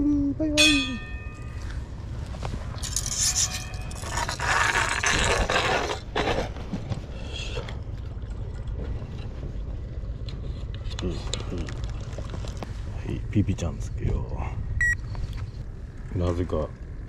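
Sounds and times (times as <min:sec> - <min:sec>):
scraping and rubbing: 0:01.3 - 0:07.6.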